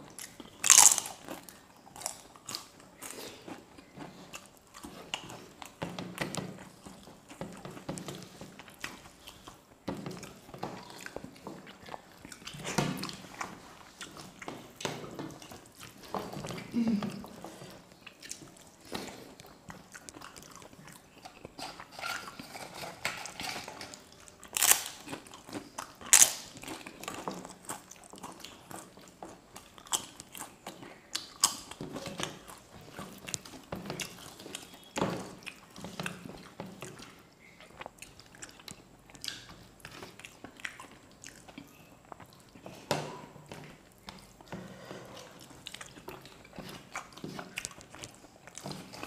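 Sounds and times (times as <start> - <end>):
chewing and biting: 0.0 - 49.0
crisp wafer crunching: 0.3 - 2.4, 24.2 - 28.9.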